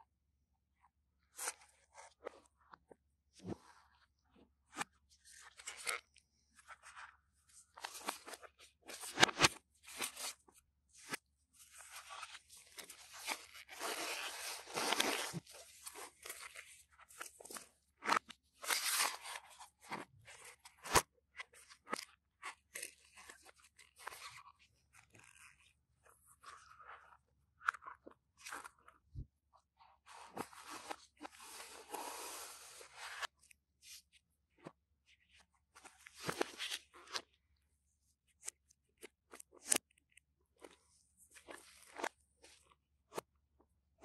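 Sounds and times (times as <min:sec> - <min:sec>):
packaging rustling and crinkling: 0:12.8 - 0:16.5.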